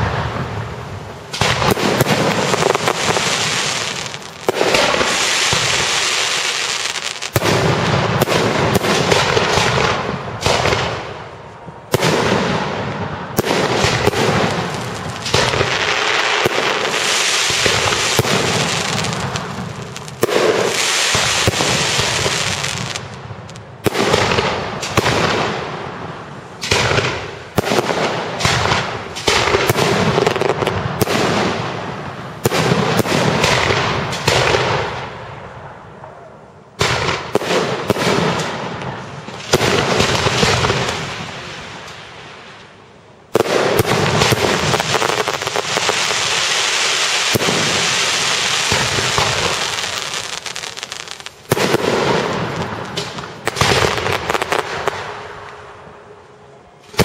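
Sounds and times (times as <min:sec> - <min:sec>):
firework hiss: 0:00.0 - 0:09.8, 0:13.4 - 0:25.0, 0:43.4 - 0:55.3
firework bangs: 0:00.0 - 0:56.2.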